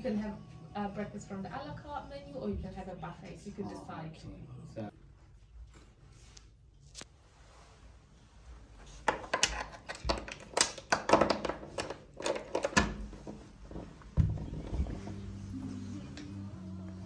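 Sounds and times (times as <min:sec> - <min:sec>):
irregular clicks and knocks: 0:09.1 - 0:13.4.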